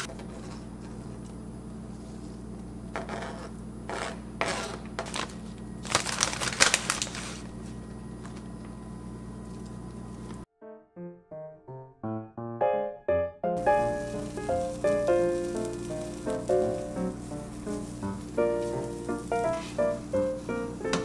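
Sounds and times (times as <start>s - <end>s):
plastic bag crinkling: 5.1s - 7.6s, 13.6s - 19.9s
steady low hum: 7.0s - 10.4s, 13.6s - 21.0s
piano music: 10.5s - 21.0s.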